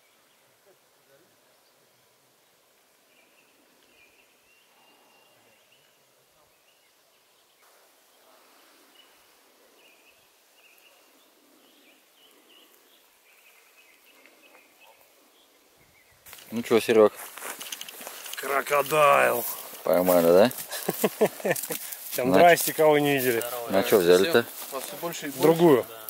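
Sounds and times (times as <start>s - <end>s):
faint bird calls: 3.0s - 16.2s
faint rustle: 6.6s - 26.0s.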